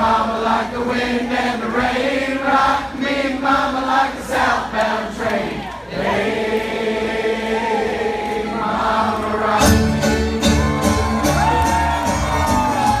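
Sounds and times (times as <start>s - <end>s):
people singing: 0.0s - 10.7s
string band playing: 9.5s - 13.0s.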